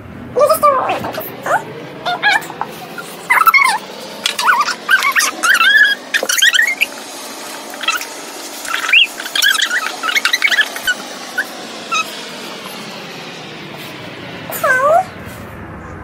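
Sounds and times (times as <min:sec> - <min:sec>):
markers squeaking on rubber glove: 0:02.1 - 0:07.0, 0:07.6 - 0:12.1.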